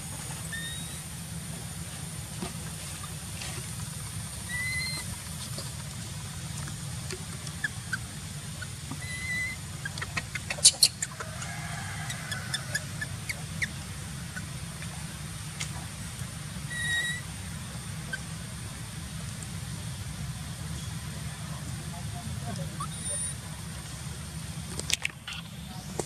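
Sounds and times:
faint high whine: 0:00.0 - 0:09.7
high chirps: 0:00.5 - 0:01.1, 0:04.4 - 0:05.1, 0:07.6 - 0:11.2, 0:16.7 - 0:17.2.

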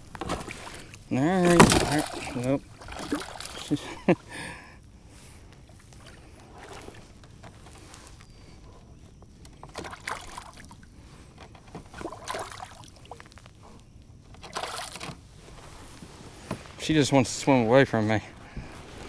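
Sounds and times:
water sloshing and splashing: 0:00.0 - 0:04.0, 0:05.7 - 0:08.1, 0:09.5 - 0:13.6, 0:14.3 - 0:15.2
fish splashing in water: 0:00.5 - 0:03.8, 0:11.9 - 0:13.3.

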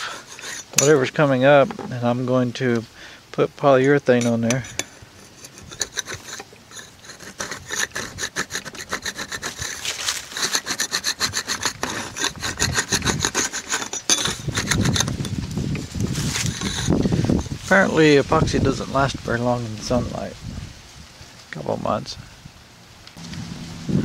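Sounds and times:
metal blade scraping glass: 0:00.0 - 0:01.8, 0:03.9 - 0:15.4, 0:16.2 - 0:17.6.

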